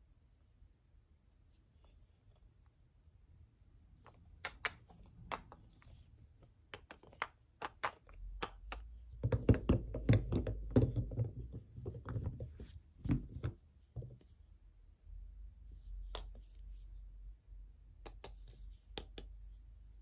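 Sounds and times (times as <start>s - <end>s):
soap bars clicking together: 4.0s - 5.6s, 6.7s - 11.0s
soap bars knocking and rubbing: 6.4s - 14.3s.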